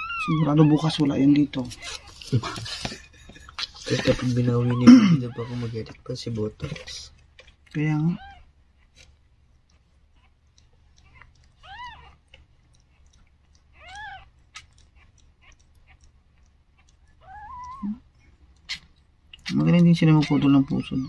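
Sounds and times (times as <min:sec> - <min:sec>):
kitten mewing: 0:03.9 - 0:05.7, 0:13.8 - 0:16.1, 0:17.2 - 0:18.0, 0:18.6 - 0:21.0.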